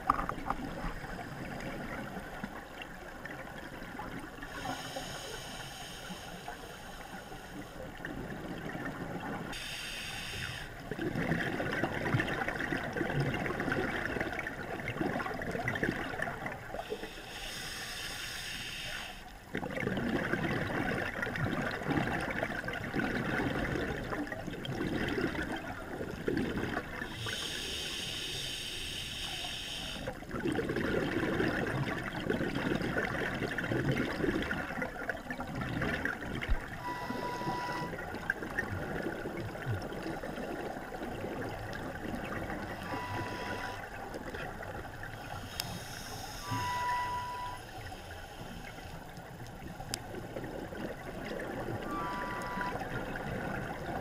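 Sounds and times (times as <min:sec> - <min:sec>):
exhaled air bubbling: 0:00.0 - 0:17.8, 0:19.4 - 0:47.8, 0:48.6 - 0:54.0
regulator inhale hiss: 0:04.5 - 0:07.8, 0:09.6 - 0:10.8, 0:16.8 - 0:19.3, 0:27.1 - 0:30.1, 0:45.2 - 0:46.6, 0:47.5 - 0:49.0.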